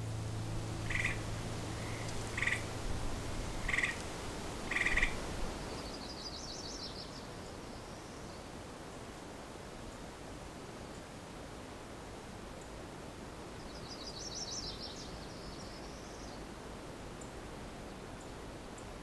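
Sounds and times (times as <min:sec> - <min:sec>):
bird chirping: 0:00.0 - 0:02.7, 0:03.5 - 0:04.0, 0:04.7 - 0:07.0
music low note: 0:00.0 - 0:05.6
tree frog trilled calls: 0:00.7 - 0:02.8, 0:03.4 - 0:04.1, 0:04.7 - 0:05.2.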